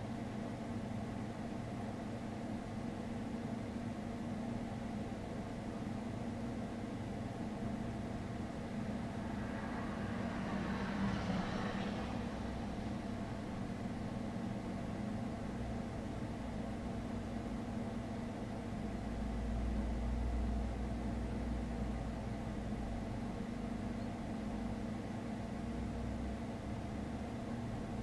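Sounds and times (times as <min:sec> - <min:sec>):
low mechanical hum: 0:00.0 - 0:28.0
low rumble: 0:08.8 - 0:13.6.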